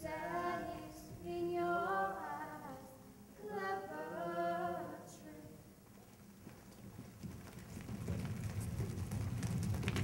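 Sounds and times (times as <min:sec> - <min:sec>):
woman singing unaccompanied: 0:00.0 - 0:05.6.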